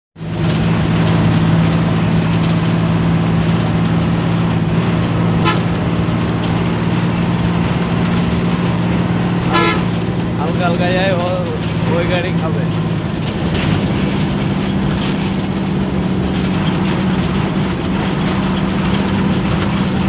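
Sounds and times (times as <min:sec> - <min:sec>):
bus engine running: 0:00.2 - 0:20.0
road noise: 0:00.2 - 0:20.0
horn toot: 0:05.4 - 0:05.8, 0:09.5 - 0:10.0.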